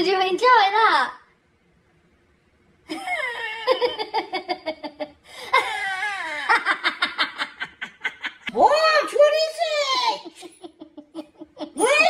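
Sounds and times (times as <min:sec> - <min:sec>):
person laughing: 0:02.9 - 0:08.5, 0:10.2 - 0:12.0.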